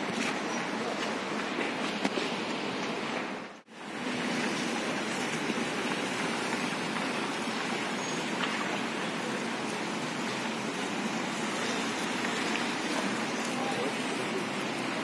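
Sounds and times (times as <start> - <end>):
street and car park noise: 0.0 - 15.0.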